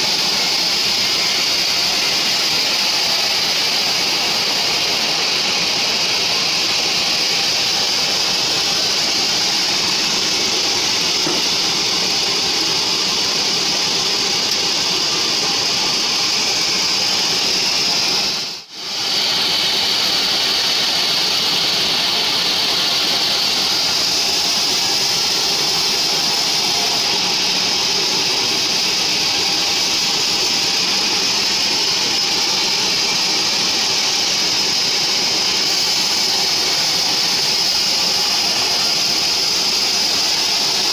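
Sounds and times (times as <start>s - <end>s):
band saw cutting log: 0.0s - 16.1s.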